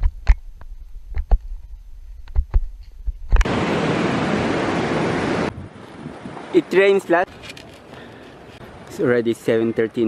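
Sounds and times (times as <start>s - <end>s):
low wind rumble: 0.8s - 6.8s
fast river rushing: 3.5s - 9.6s.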